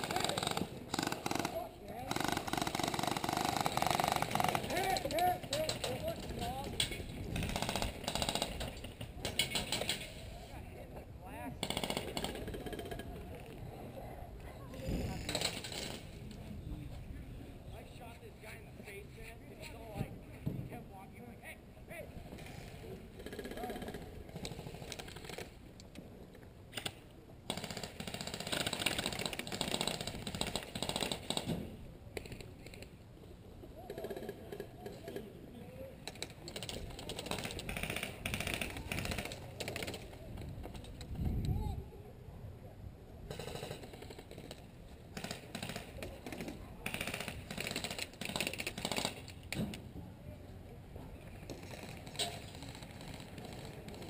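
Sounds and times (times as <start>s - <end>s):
airsoft guns firing bursts: 0.0s - 6.7s, 7.3s - 10.0s, 11.6s - 13.0s, 26.7s - 31.5s, 36.1s - 40.1s, 43.3s - 49.3s.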